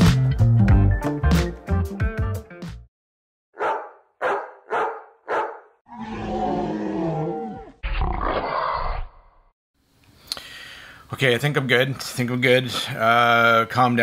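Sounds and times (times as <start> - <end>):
dog barking: 3.6 - 5.8.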